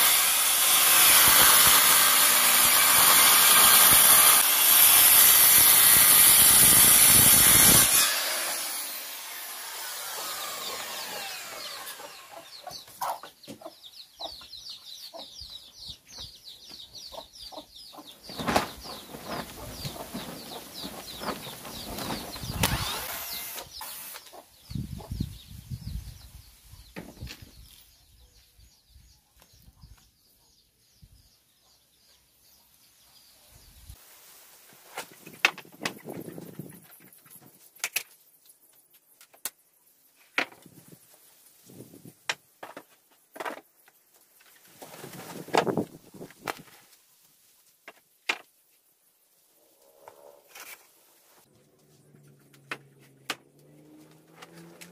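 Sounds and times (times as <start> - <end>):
circular saw cutting wood: 0.0 - 12.8, 21.8 - 24.4.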